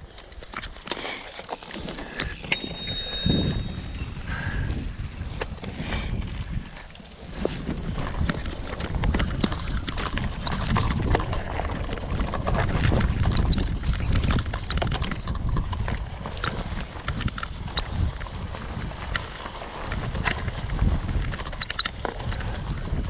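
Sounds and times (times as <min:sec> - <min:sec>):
tyres crunching over stones: 0:00.0 - 0:02.7
bike clattering: 0:00.0 - 0:04.5, 0:05.2 - 0:23.0.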